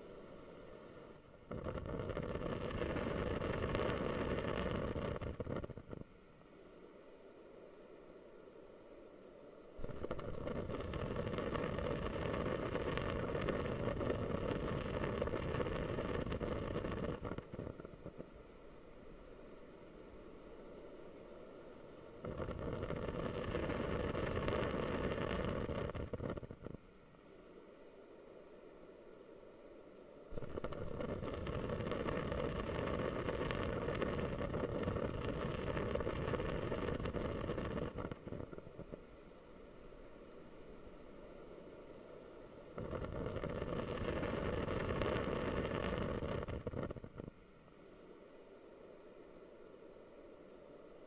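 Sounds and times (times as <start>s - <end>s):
humidifier bubbling: 1.1s - 6.4s, 9.6s - 18.5s, 22.0s - 27.3s, 30.2s - 39.2s, 42.7s - 47.8s.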